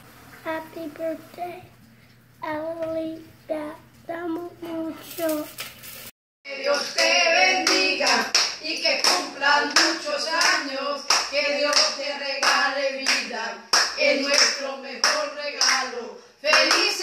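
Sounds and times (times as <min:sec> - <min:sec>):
voices singing: 0:06.5 - 0:17.0
people clapping in rhythm: 0:06.6 - 0:17.0.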